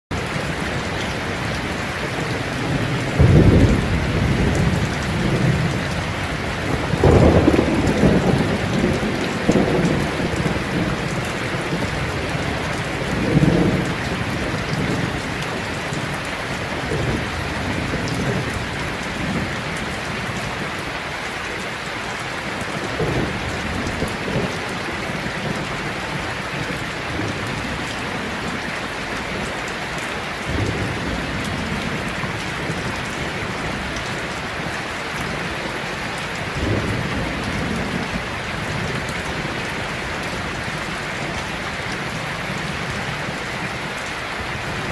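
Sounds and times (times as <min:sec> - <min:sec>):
heavy rain falling: 0:00.1 - 0:44.9
rolling thunder: 0:01.6 - 0:20.4, 0:22.7 - 0:28.7.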